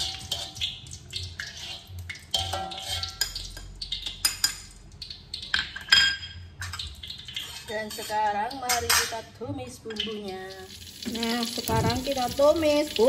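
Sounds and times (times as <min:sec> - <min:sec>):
oil sizzling: 0:00.0 - 0:09.0, 0:09.9 - 0:13.0
wire skimmer scraping a wok: 0:01.4 - 0:03.3.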